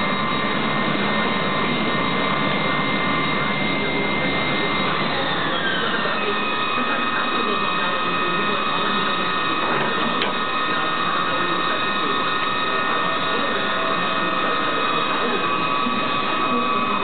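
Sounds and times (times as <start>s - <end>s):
lathe spindle whine: 0.0s - 17.0s.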